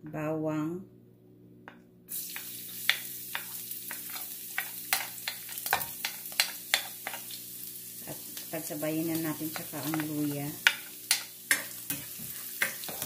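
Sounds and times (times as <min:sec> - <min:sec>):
garlic sizzling in hot oil: 0:02.1 - 0:13.0
spoon tapping pan: 0:02.3 - 0:07.3, 0:09.4 - 0:13.0.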